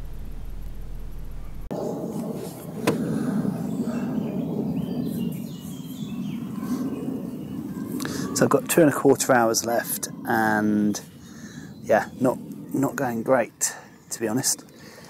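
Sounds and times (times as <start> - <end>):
low rumble: 0.0 - 2.7
steady low hum: 0.0 - 4.7.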